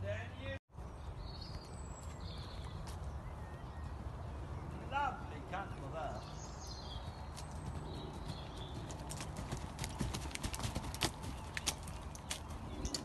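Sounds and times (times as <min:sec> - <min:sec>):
horse hoofbeats: 0:06.8 - 0:13.0.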